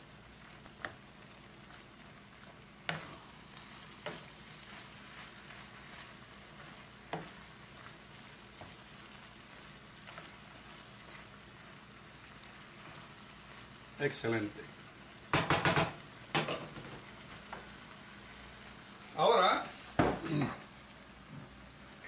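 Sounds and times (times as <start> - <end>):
food sizzling in a frying pan: 0.0 - 22.0
wooden spoon knocking on pan: 2.8 - 3.2, 4.0 - 4.3, 7.1 - 7.4, 15.3 - 17.7, 20.0 - 20.2.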